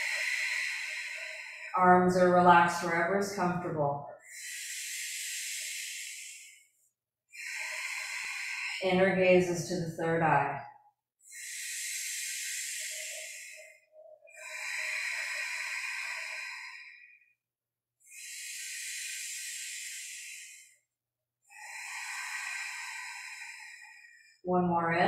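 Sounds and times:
deep breaths through mouth: 7.3s - 8.8s, 11.2s - 17.2s, 21.5s - 24.4s.

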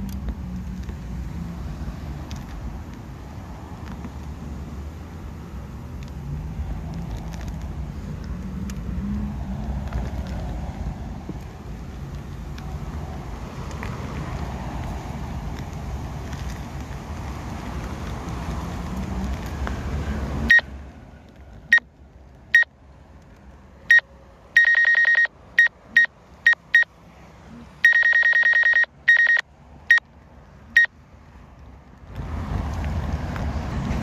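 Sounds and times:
high-pitched electronic beeps: 20.5s - 20.7s, 24.6s - 26.9s, 27.8s - 30.0s.

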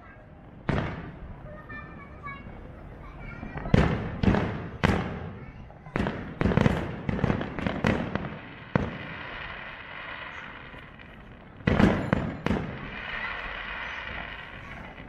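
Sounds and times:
hiss of burning fireworks: 0.2s - 15.0s
firework shells bursting: 6.0s - 15.0s.

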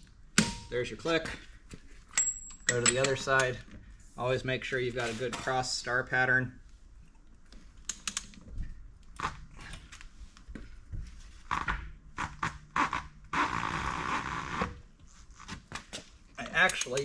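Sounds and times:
torque wrench metallic clicks: 16.5s - 17.0s.

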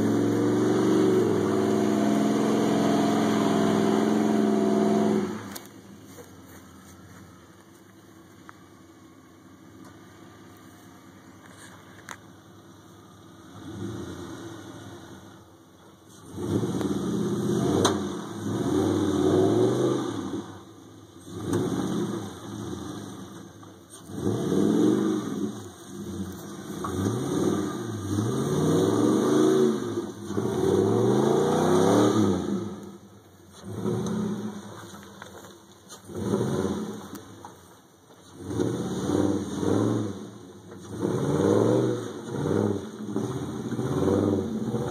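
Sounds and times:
truck engine revving: 0.0s - 5.6s, 13.4s - 15.4s, 16.1s - 20.6s, 21.2s - 35.2s, 35.9s - 37.6s, 38.2s - 44.9s.

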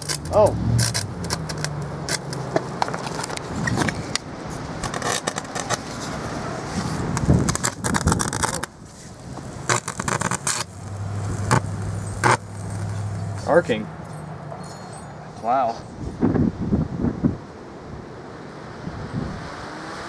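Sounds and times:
motor brushes arcing and crackling: 9.4s - 13.4s.

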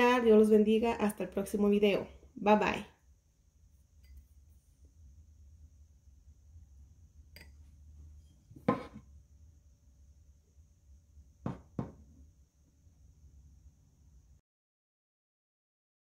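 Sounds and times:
low steady hum: 0.0s - 14.4s
knocks on kitchen counter: 8.6s - 9.0s, 11.4s - 12.0s.

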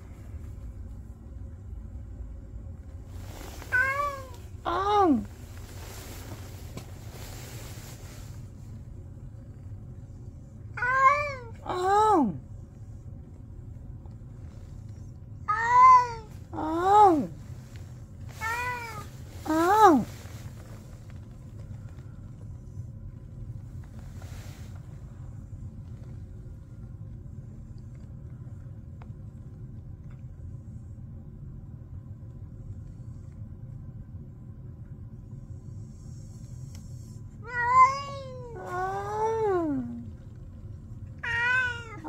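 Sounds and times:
low background rumble: 0.0s - 42.0s
steady low hum: 0.0s - 42.0s
cat meowing: 3.7s - 4.9s, 37.4s - 40.0s, 41.2s - 42.0s.

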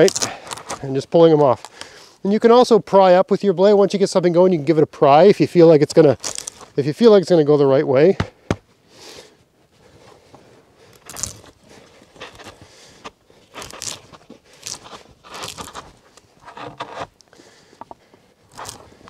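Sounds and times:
knife shaving wood: 10.9s - 19.0s.

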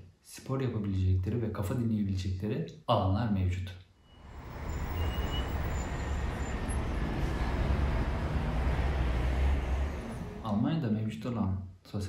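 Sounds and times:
traffic rumble: 4.2s - 10.7s.

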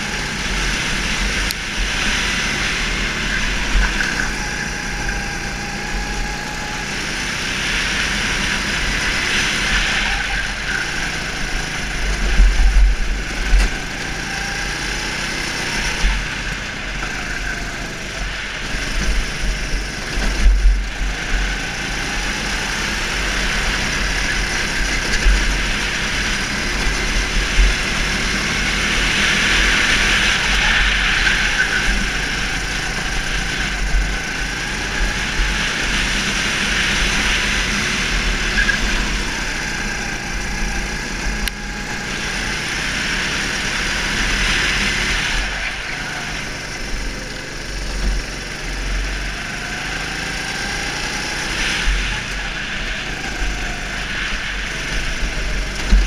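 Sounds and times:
go-kart engine revving: 0.0s - 56.0s.

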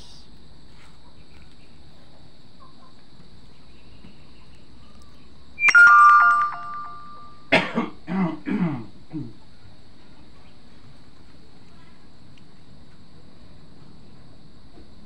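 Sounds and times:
bell-like metallic ring: 5.6s - 7.5s.

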